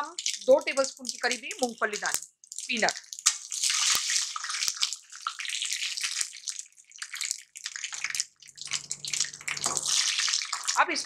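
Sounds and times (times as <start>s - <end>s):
seeds sizzling and crackling in oil: 0.0s - 11.0s
metal spoon stirring: 8.5s - 10.9s.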